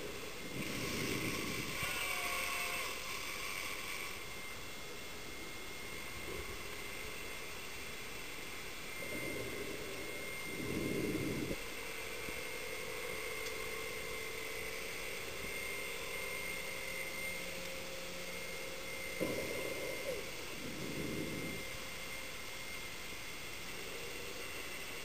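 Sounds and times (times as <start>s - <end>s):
underwater motor whine: 0.0s - 25.0s
muffled rumble: 9.0s - 11.6s.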